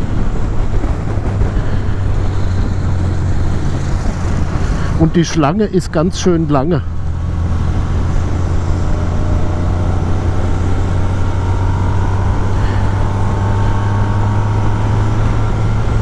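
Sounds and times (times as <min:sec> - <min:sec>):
road noise: 0:00.0 - 0:16.0
wind noise: 0:00.0 - 0:16.0
motorcycle engine droning: 0:05.6 - 0:16.0.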